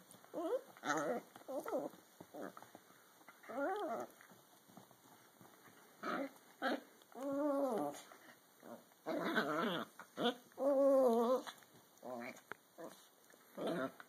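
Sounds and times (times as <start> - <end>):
dogs growling squeakily: 0.3 - 2.6, 3.4 - 4.2, 6.0 - 14.0.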